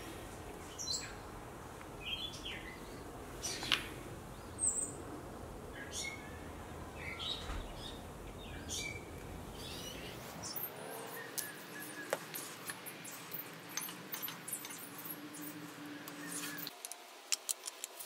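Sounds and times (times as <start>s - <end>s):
low outdoor rumble: 0.0s - 11.1s
faint bird chirps: 7.0s - 16.8s
glue bottle clicks and scratches: 17.3s - 18.0s.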